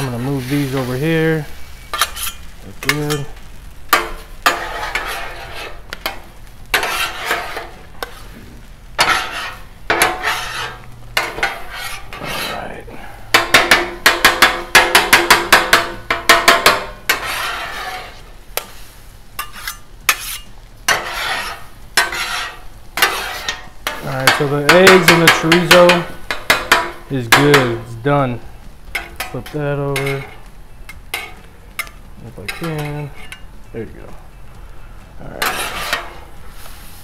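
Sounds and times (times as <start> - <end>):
metal spatulas scraping griddle: 0.0 - 28.3, 28.9 - 33.4, 35.2 - 37.0
spatulas clacking: 1.9 - 8.2, 9.0 - 12.6, 13.3 - 18.7, 19.4 - 28.0, 28.9 - 33.5, 35.4 - 36.3.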